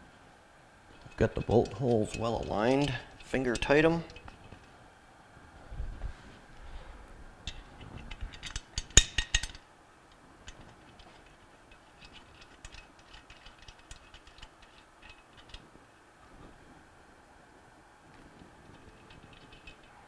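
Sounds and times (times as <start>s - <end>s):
metal bolts clicking: 0.9s - 4.7s, 7.4s - 9.6s, 10.4s - 15.7s, 18.7s - 20.0s.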